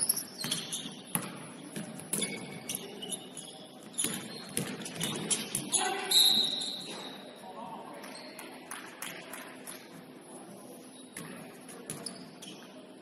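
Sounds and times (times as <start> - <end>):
sneaker squeaks: 0.0 - 7.4, 8.0 - 8.6, 10.7 - 13.0
faint players' voices: 1.4 - 13.0.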